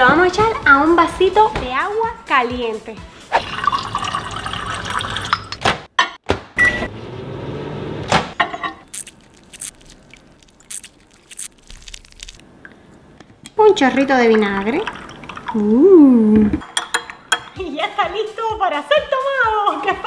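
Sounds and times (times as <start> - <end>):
water running into a glass: 3.4 - 5.5, 13.9 - 17.6
microwave beep: 6.6 - 6.9.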